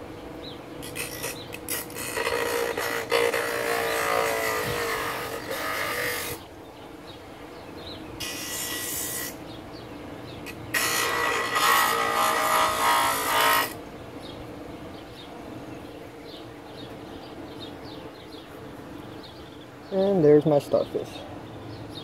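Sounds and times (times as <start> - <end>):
bench grinder running: 0.8 - 6.4, 10.6 - 13.8
rough grinding of wood: 0.8 - 6.4, 8.2 - 9.4, 10.5 - 13.8.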